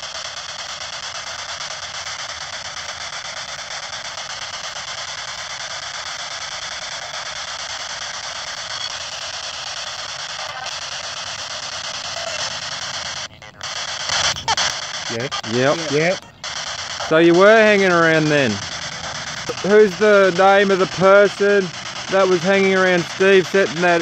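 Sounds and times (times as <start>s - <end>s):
radio static hiss: 0.0s - 24.0s
short radio voice fragment: 12.0s - 16.4s, 17.0s - 18.7s, 19.3s - 24.0s.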